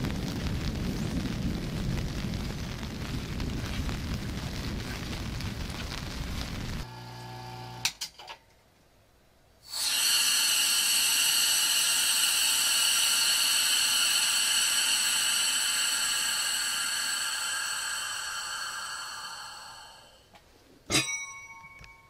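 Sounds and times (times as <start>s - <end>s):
rain: 0.0s - 6.9s
vacuum pump whining: 6.8s - 8.0s.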